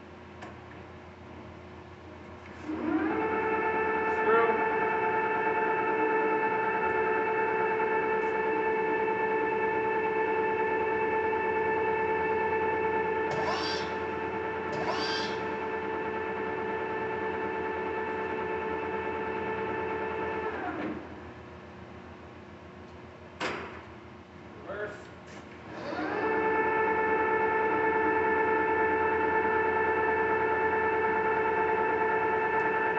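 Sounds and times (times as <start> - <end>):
lathe gear whine: 2.5 - 21.4, 25.6 - 32.9
brief rising whines: 2.6 - 21.0.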